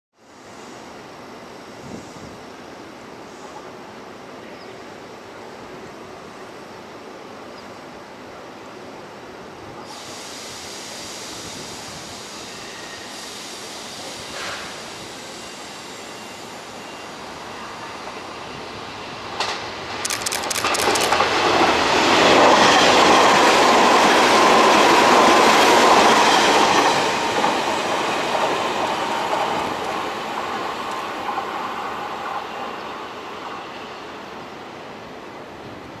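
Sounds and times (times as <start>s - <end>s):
wheels clicking over rail joints: 20.0s - 21.6s.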